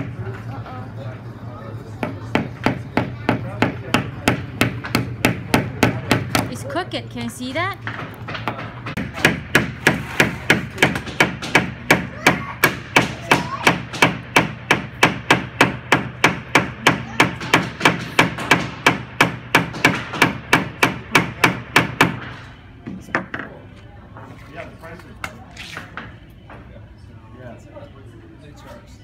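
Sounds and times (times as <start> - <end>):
hammer striking nails into wood: 2.3 - 6.5, 8.9 - 22.4.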